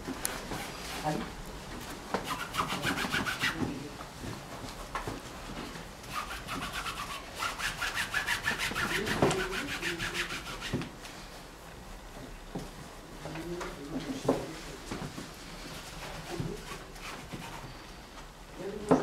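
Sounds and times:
rag scrubbing paint on canvas: 2.2s - 3.6s, 6.1s - 10.8s.

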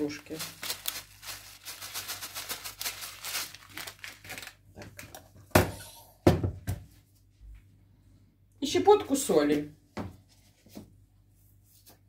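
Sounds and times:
packet crinkling: 0.0s - 5.2s.

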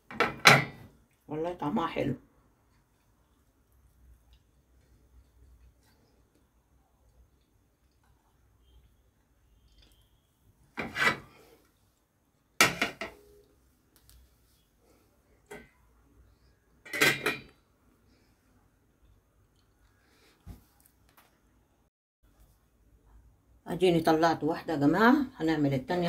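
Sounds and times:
plates and cookware clattering: 0.1s - 0.8s, 10.8s - 11.3s, 12.6s - 13.2s, 16.9s - 17.6s.

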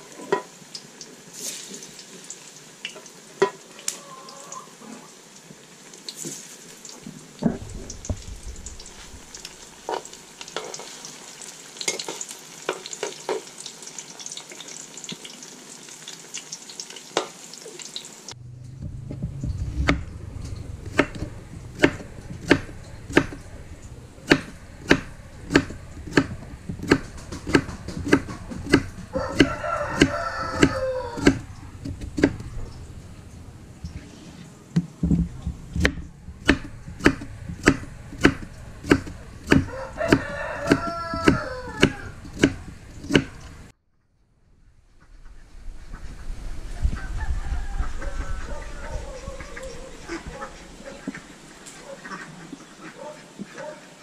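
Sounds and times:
frying sizzle in wok: 0.0s - 18.4s, 19.5s - 33.3s, 36.4s - 43.7s
metal spatula scraping and tapping: 11.8s - 13.4s, 20.8s - 32.5s.

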